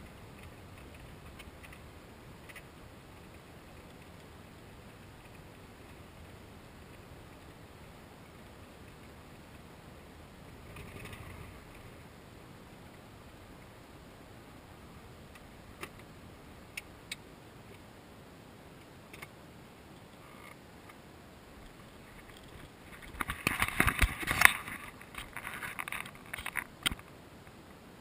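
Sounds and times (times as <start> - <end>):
crackling knocking noise: 0.0 - 4.3
faint steady hiss: 0.0 - 28.0.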